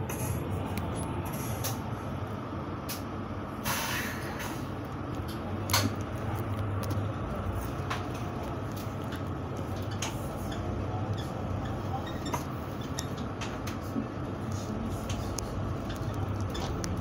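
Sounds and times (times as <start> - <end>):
air hiss: 3.6 - 4.7.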